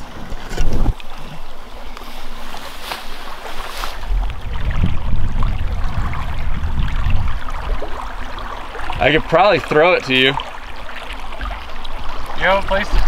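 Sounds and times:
wind buffeting microphone: 0:00.0 - 0:13.0
low rumble: 0:04.0 - 0:07.9.

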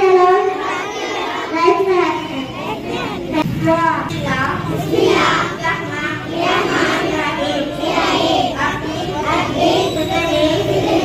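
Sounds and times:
girl singing into a microphone: 0:08.5 - 0:11.0.

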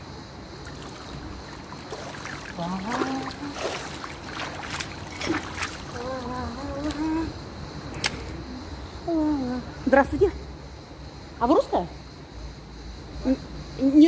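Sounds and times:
water splashing and dripping: 0:00.6 - 0:07.3.

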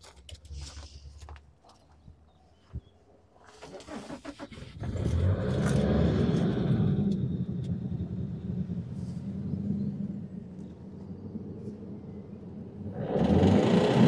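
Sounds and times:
car exhaust rumble: 0:03.4 - 0:14.0.

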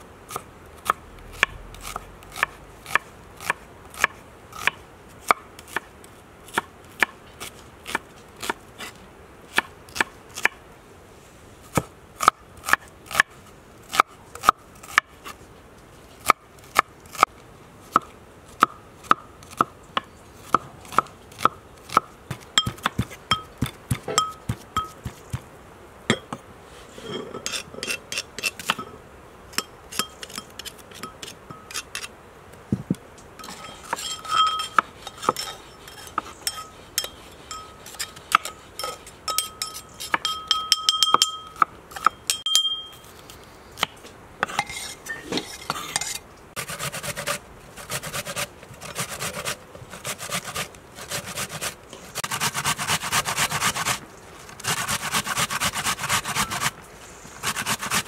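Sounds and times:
spoon tapping and scraping mortar: 0:33.4 - 0:42.9
onion rubbed on metal grater: 0:46.6 - 0:54.0, 0:54.6 - 0:56.7, 0:57.4 - 0:58.0.

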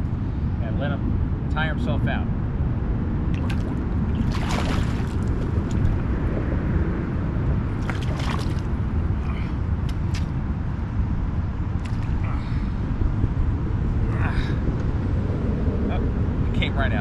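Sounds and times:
wind rumble on microphone: 0:00.0 - 0:17.0
fish splashing at water surface: 0:03.4 - 0:05.9, 0:07.8 - 0:08.7.

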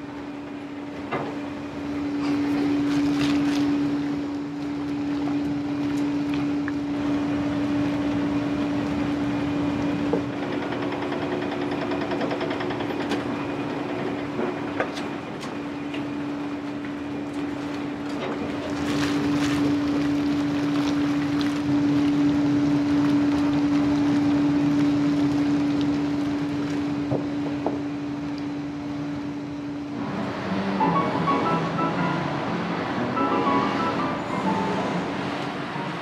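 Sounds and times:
steady machine hum: 0:00.0 - 0:10.6
rushing noise: 0:30.0 - 0:36.0.

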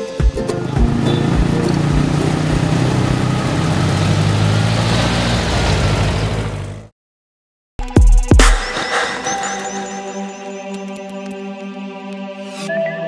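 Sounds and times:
car engine running: 0:00.0 - 0:06.9
road and wind noise: 0:00.0 - 0:06.9.

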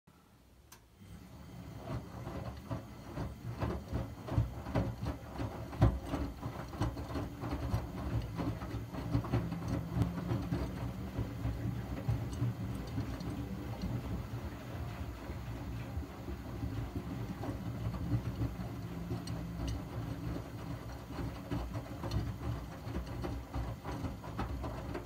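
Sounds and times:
washing machine motor hum: 0:00.9 - 0:25.0
laundry sloshing and thudding in drum: 0:01.2 - 0:25.0.

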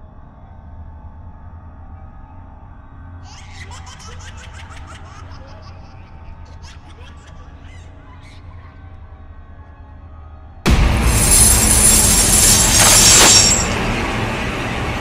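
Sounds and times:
girl giggling: 0:03.3 - 0:07.9
low steady drone: 0:10.7 - 0:15.0.

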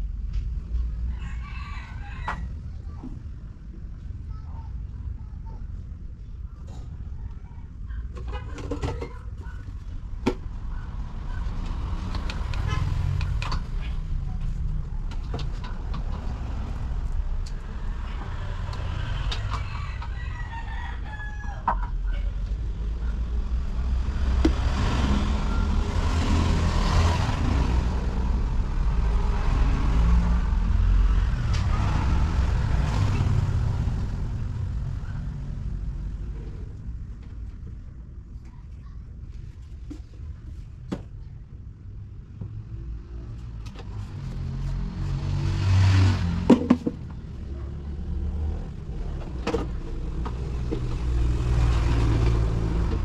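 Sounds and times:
roosters crowing: 0:00.9 - 0:02.6, 0:18.4 - 0:22.3.

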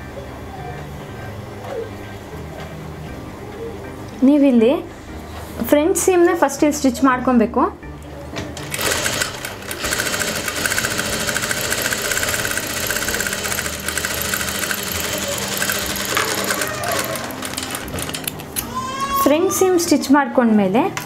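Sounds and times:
sewing machine stitching: 0:08.6 - 0:18.3.

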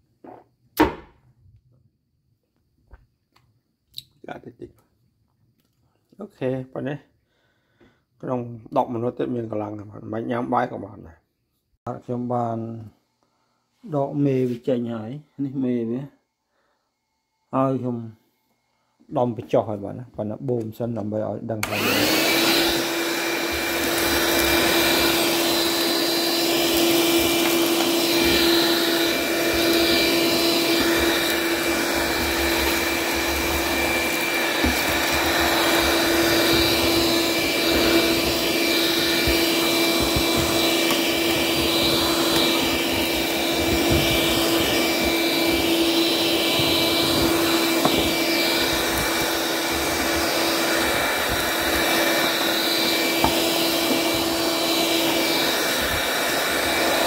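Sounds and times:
cordless vacuum running: 0:21.6 - 0:57.0.

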